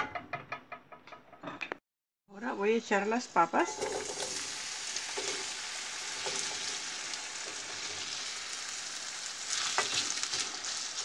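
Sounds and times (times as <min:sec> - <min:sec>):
potatoes sizzling in hot oil: 0:03.2 - 0:11.0.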